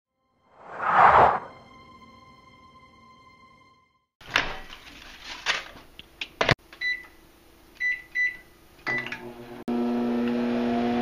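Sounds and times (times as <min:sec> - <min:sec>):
microwave oven humming: 0:08.0 - 0:11.0.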